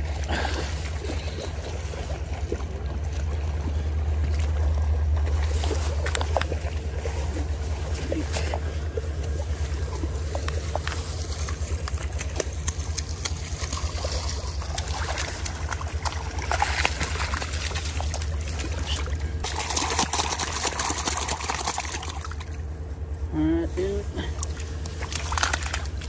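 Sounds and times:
creek water running and splashing: 0.0 - 23.1, 23.8 - 26.0
steady low rumble: 0.0 - 26.0.

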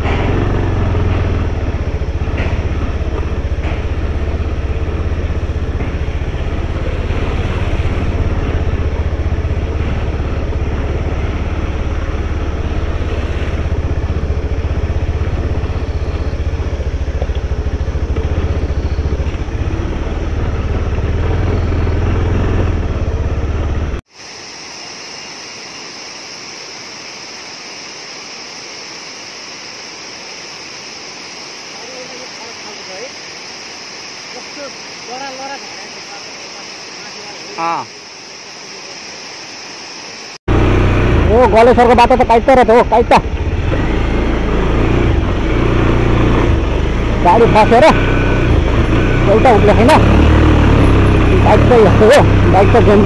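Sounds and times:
waterfall hiss: 0.0 - 20.4, 24.0 - 53.0
motorcycle rumbling on gravel: 0.0 - 24.0, 40.5 - 53.0.

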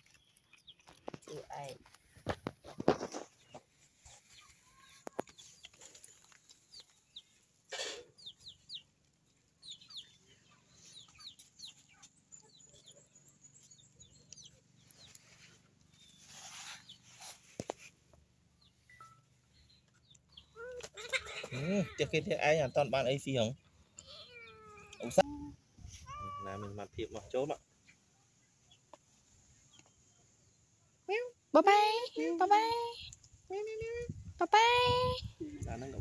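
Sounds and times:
rough bird calls: 2.9 - 17.7
high bird chirps: 8.1 - 8.9, 9.6 - 15.2, 18.6 - 20.6.

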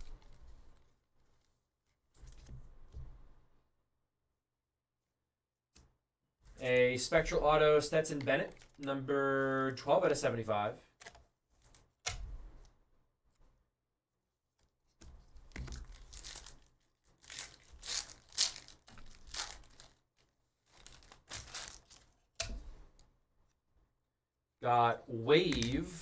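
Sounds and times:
foil wrapper tearing and crinkling: 15.5 - 22.2.

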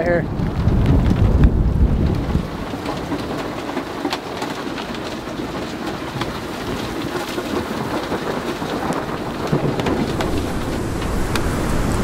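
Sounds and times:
heavy rain on vehicle roof: 0.0 - 12.0.

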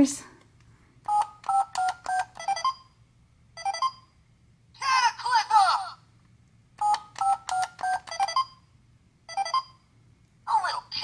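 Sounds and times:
toy phone beeps: 1.1 - 3.0, 3.6 - 4.2, 6.8 - 8.7, 9.3 - 9.8
recorded toy voice: 4.8 - 6.0, 10.5 - 11.0.

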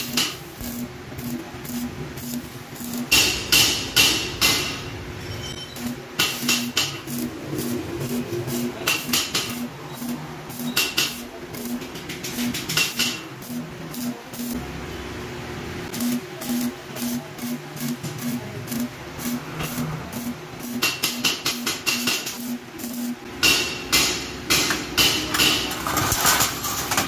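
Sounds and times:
arc welding crackling: 0.0 - 4.8, 5.8 - 14.8, 15.8 - 24.2.

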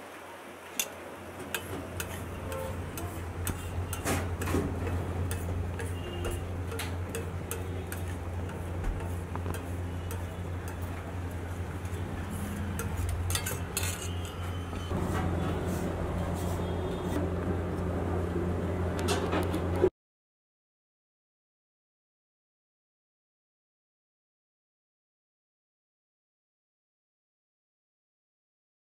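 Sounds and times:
metal spatula scraping on iron pan: 0.8 - 17.2.

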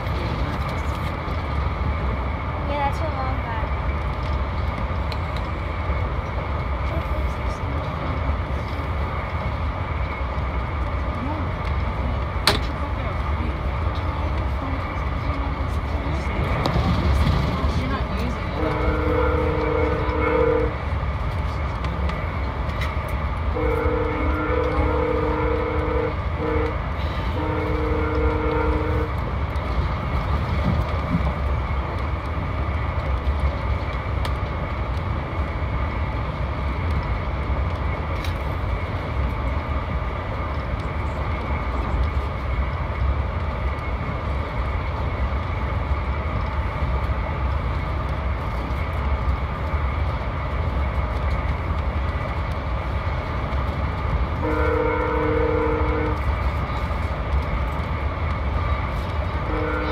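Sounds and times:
train coach rumbling: 0.0 - 59.9
locomotive horn blast: 18.6 - 20.8, 23.5 - 29.1, 54.4 - 56.3, 59.4 - 59.9.

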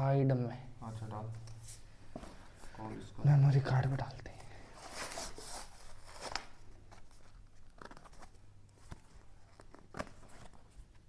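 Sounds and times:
paper packaging tearing: 4.9 - 10.7
card packaging snapping: 7.6 - 10.7.

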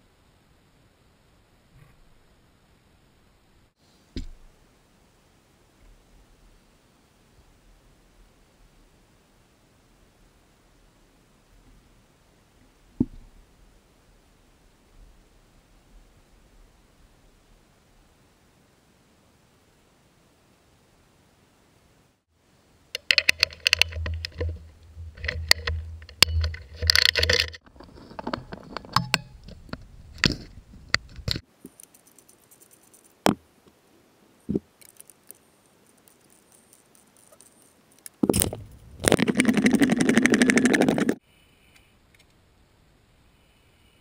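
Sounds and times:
metal hand tools rattling: 23.0 - 27.6.

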